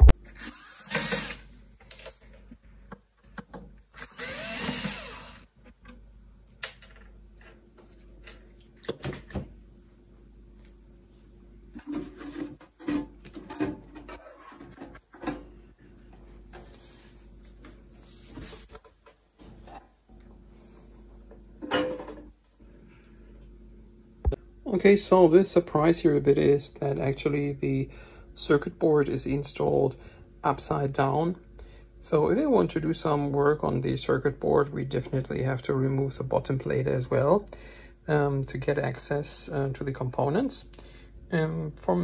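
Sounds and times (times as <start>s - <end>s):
power screwdriver whirring: 0.4s - 1.5s, 4.0s - 5.5s.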